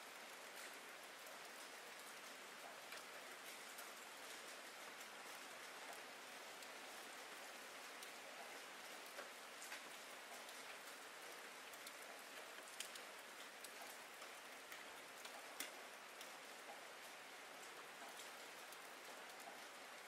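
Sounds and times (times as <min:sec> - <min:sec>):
raindrops ticking: 0:00.1 - 0:20.0.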